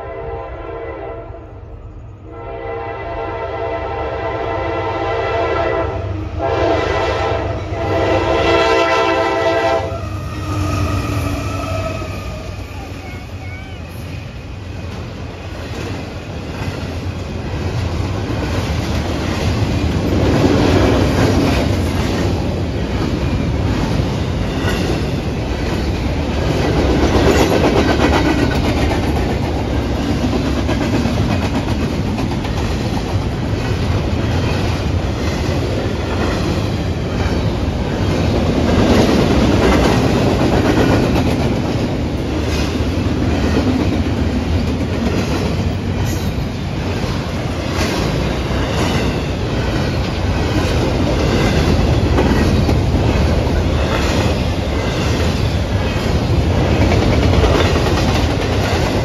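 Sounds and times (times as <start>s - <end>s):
freight train wheels rumbling: 0.0s - 59.0s
wheels clacking over rail joints: 14.9s - 59.0s.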